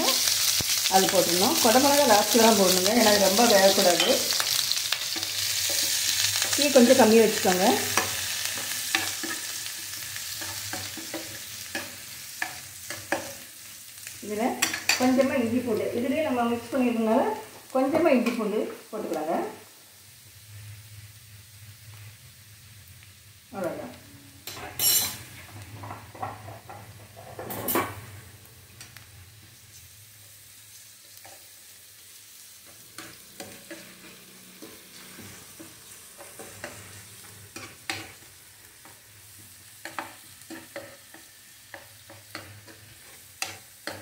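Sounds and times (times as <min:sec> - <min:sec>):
onions sizzling in oil: 0:00.0 - 0:44.0
metal spoon scraping a pan: 0:01.6 - 0:13.4, 0:24.4 - 0:28.0, 0:32.9 - 0:38.3, 0:39.8 - 0:44.0.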